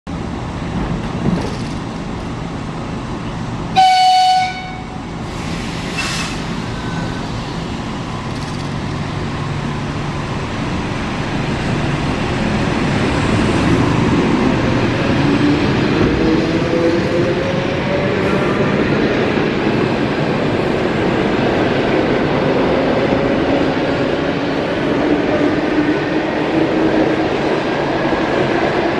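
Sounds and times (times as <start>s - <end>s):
train passing with motor whine: 0.1s - 28.9s
train horn blast: 3.8s - 5.0s.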